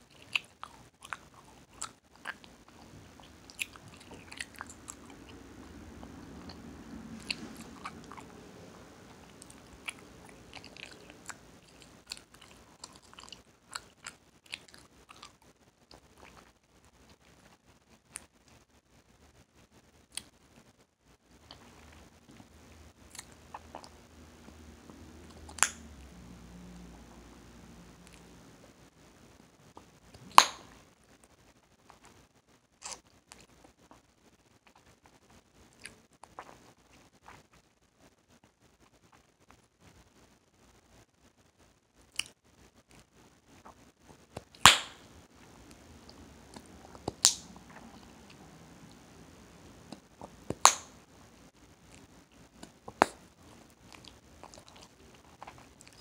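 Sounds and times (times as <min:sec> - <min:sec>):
gum chewing smacks: 0:00.0 - 0:16.5, 0:24.9 - 0:25.8, 0:45.7 - 0:49.0, 0:51.9 - 0:56.0
bubble gum cracking: 0:25.4 - 0:25.8, 0:44.4 - 0:45.0, 0:46.5 - 0:47.5
bubble gum snapping: 0:44.7 - 0:45.0, 0:47.1 - 0:47.4.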